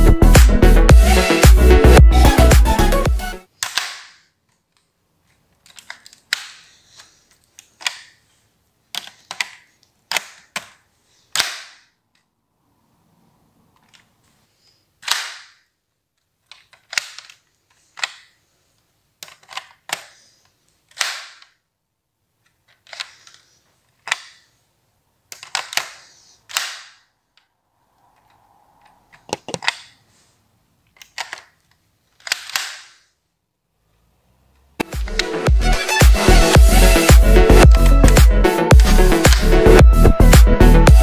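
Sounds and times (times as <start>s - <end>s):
plastic toy gun clacks: 3.6s - 8.2s, 8.9s - 12.3s, 15.0s - 15.7s, 16.4s - 18.4s, 19.2s - 21.6s, 22.5s - 24.5s, 25.3s - 27.1s, 29.1s - 30.0s, 30.9s - 33.1s.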